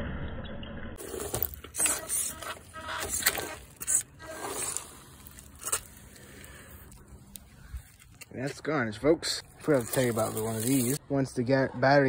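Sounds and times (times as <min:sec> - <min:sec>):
scraping and rustling: 0:01.0 - 0:08.3, 0:09.6 - 0:11.0.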